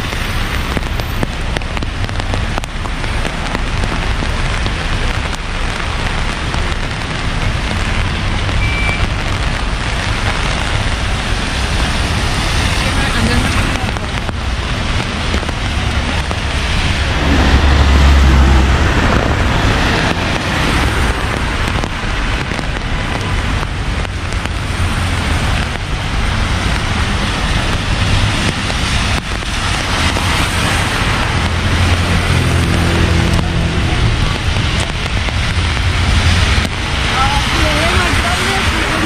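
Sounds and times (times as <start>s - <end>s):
rain falling on street: 0.0s - 39.0s
road traffic: 0.0s - 39.0s
vehicle passing rumble: 9.1s - 39.0s.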